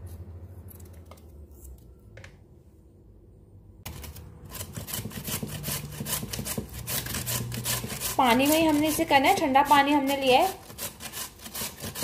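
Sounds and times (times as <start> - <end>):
knife scraping potato: 3.9 - 12.0
potato grated on metal grater: 3.9 - 12.0.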